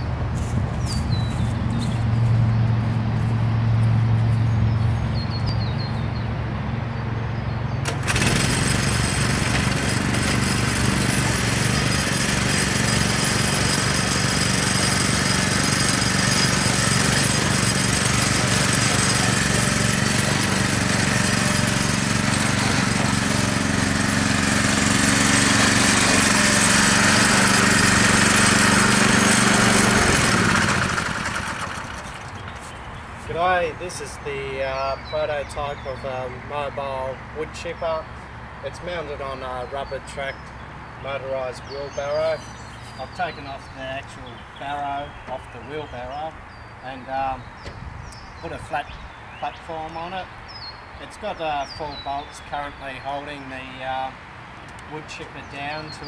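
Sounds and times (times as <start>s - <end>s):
small petrol engines running: 7.8s - 32.7s.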